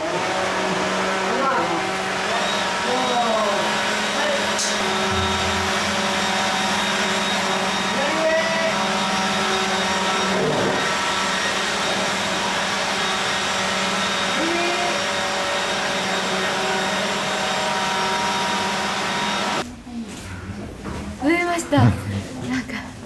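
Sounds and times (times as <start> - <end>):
rush of air from blowers: 0.0 - 19.6
low motor hum: 4.8 - 8.0.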